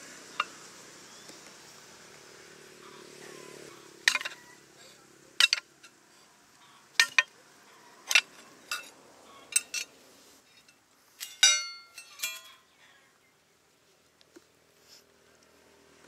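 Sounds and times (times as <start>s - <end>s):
metal tool striking steel: 7.0s - 7.3s, 11.2s - 12.5s.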